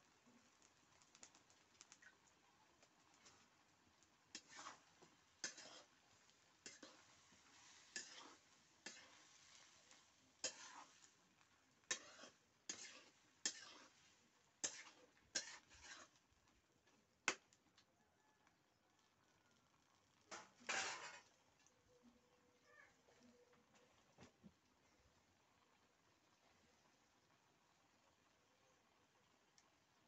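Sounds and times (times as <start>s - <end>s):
spatula scraping a wok: 3.0s - 16.4s, 20.3s - 21.4s.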